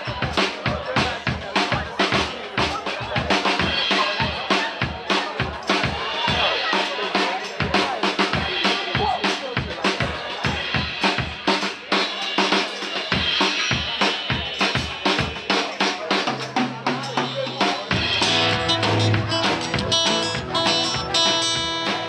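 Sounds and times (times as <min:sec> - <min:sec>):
drum kit fast break: 0:00.0 - 0:22.0
acoustic guitar strummed chords: 0:17.9 - 0:22.0.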